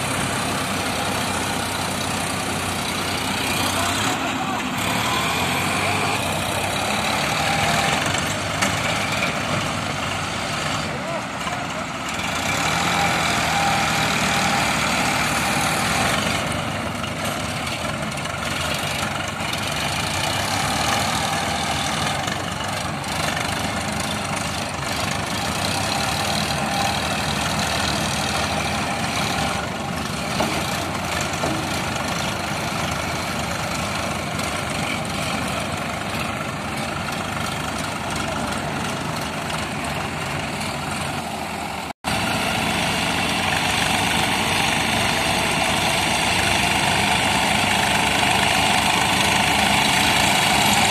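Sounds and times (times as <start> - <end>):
tractor diesel engines droning: 0.0 - 50.9.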